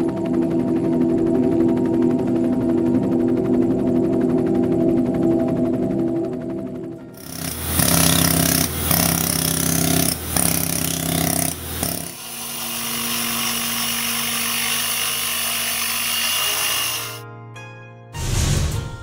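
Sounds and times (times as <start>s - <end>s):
angle grinder cutting stone: 7.2s - 17.2s
pneumatic tool on stone: 7.2s - 17.2s.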